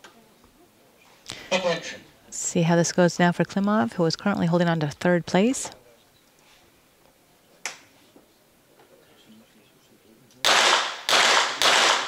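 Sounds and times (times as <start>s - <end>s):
pistol shots: 10.4s - 12.0s.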